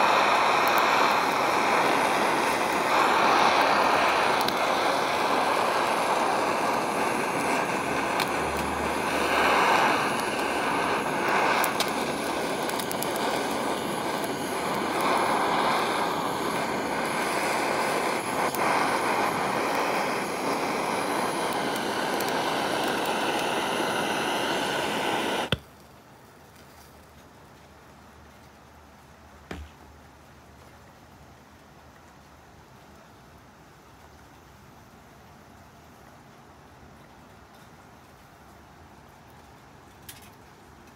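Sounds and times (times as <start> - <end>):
gas torch flame hissing: 0.0 - 25.6.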